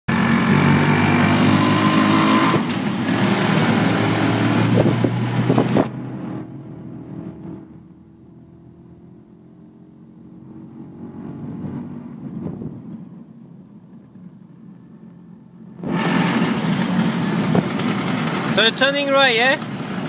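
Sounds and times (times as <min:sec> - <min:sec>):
motorcycle engine running: 0:00.1 - 0:06.0
loud rushing noise: 0:00.1 - 0:07.8, 0:15.7 - 0:20.0.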